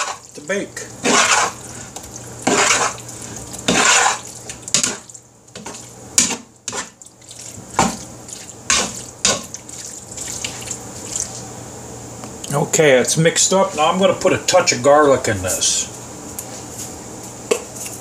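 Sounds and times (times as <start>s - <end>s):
spatula stirring wet filling: 0.0s - 11.4s.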